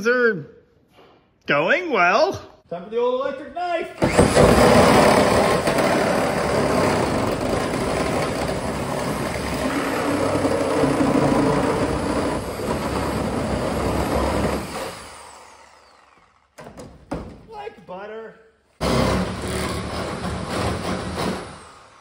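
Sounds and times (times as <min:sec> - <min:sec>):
reciprocating saw cutting metal: 0:04.0 - 0:16.6, 0:18.8 - 0:22.0.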